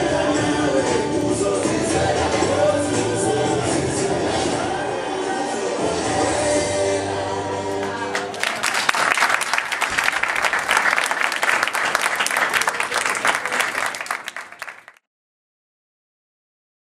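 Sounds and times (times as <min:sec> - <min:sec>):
music: 0:00.0 - 0:09.3
audience applause: 0:07.8 - 0:15.0.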